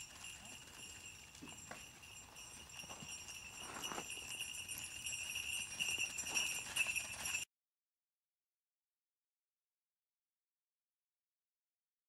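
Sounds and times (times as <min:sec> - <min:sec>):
soft hoofbeats: 0:00.0 - 0:07.4
jingle bells jingling: 0:00.0 - 0:07.5.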